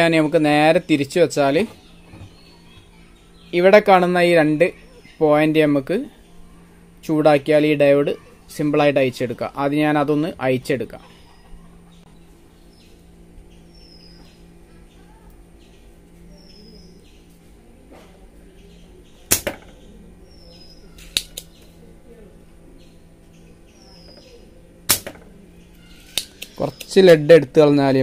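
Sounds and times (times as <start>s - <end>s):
faint steady hum: 0.0s - 28.0s
desoldering pump snaps: 19.2s - 19.9s, 21.0s - 21.7s, 24.8s - 25.4s, 26.0s - 27.0s.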